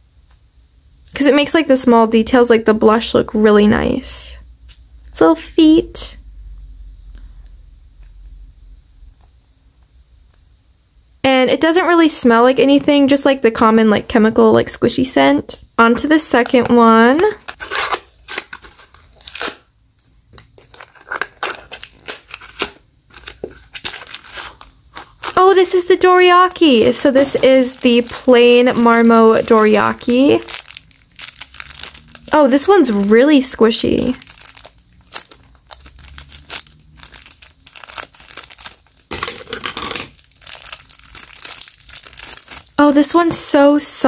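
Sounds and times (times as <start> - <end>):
plastic bag crinkling: 16.3 - 43.5
paperboard box tearing and rustling: 17.5 - 19.6.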